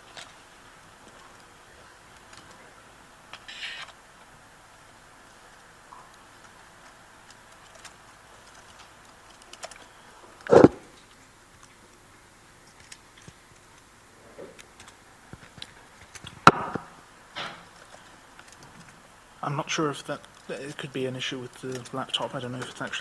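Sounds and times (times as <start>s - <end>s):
laptop keys and trackpad clicking: 6.4s - 9.9s.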